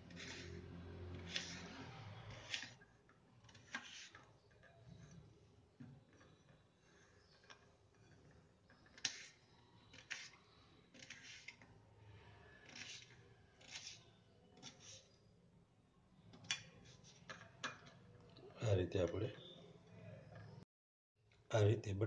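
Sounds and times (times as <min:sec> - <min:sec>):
knife scraping potato: 0:00.0 - 0:02.8, 0:03.5 - 0:04.5, 0:08.8 - 0:11.7, 0:12.5 - 0:15.3.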